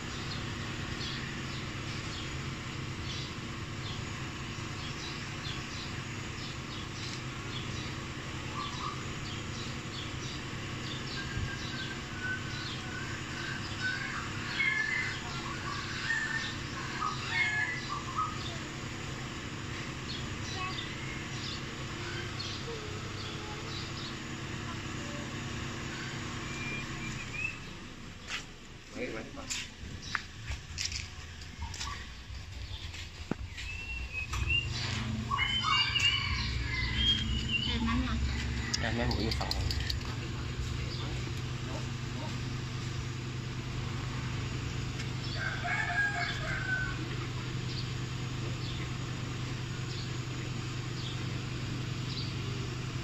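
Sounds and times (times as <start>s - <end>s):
low machine hum: 0.0s - 53.0s
small birds chirping: 0.0s - 53.0s.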